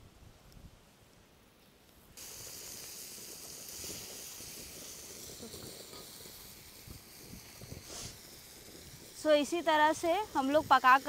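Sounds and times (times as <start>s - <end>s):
fish sizzling in hot oil: 2.2s - 11.0s.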